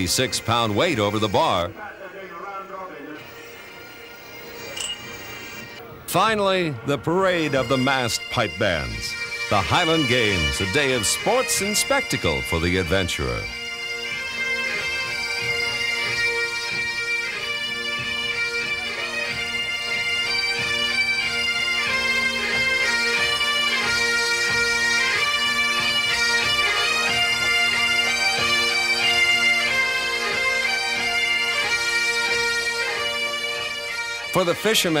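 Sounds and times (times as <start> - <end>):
massed bagpipes playing: 0.0 - 35.0.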